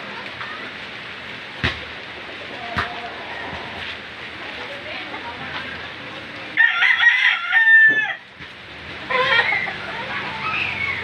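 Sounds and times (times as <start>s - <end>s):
rooster crowing: 6.6s - 8.3s.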